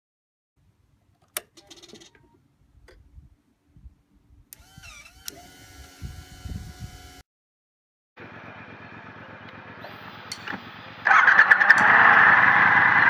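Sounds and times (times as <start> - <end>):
sharp clicks: 4.5 - 6.0
motorcycle engine cranking and starting: 8.2 - 13.0.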